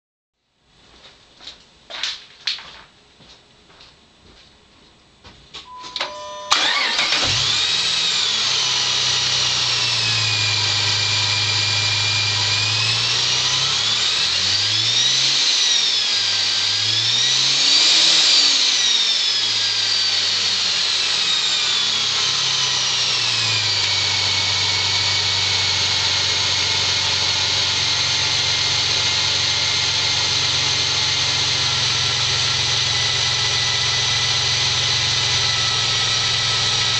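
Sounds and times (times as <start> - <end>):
supercharger whine: 5.7 - 36.9
car engine running: 6.5 - 36.9.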